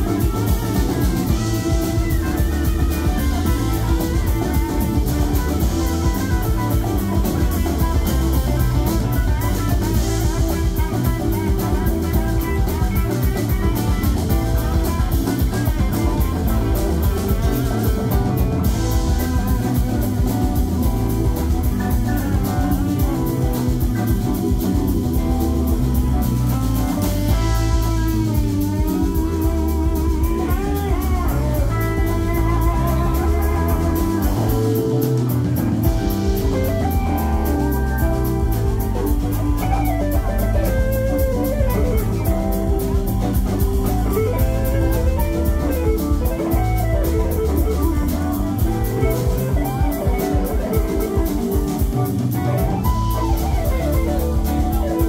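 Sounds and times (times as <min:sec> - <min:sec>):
drum kit: 0:00.0 - 0:55.0
electric guitar lead: 0:00.0 - 0:55.0.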